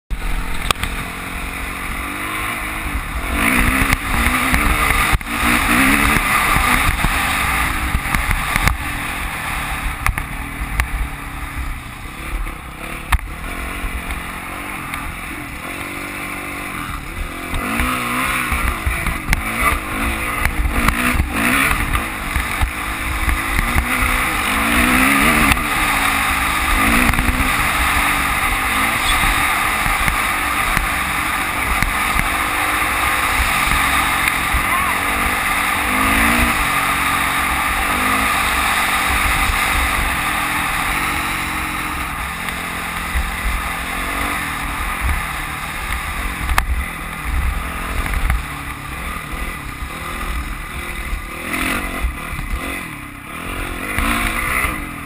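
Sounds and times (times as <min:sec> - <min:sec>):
dirt bike engine revving: 0:00.1 - 0:55.0.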